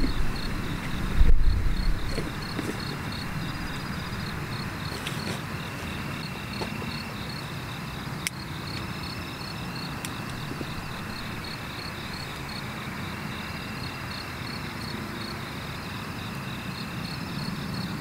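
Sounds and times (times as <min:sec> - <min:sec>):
wind rumble on microphone: 0:00.0 - 0:05.0, 0:10.2 - 0:12.7
crickets chirping: 0:00.0 - 0:18.0.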